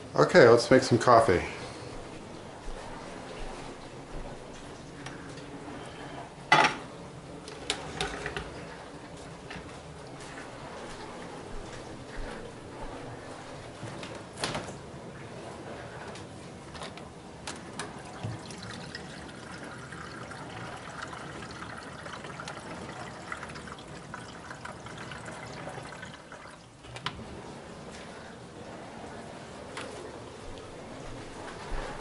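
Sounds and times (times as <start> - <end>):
water pouring into kettle: 17.8 - 26.8.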